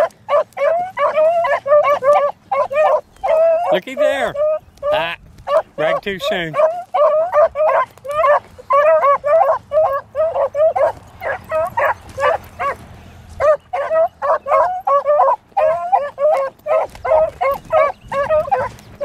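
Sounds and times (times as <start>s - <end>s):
beagles baying: 0.0s - 19.0s.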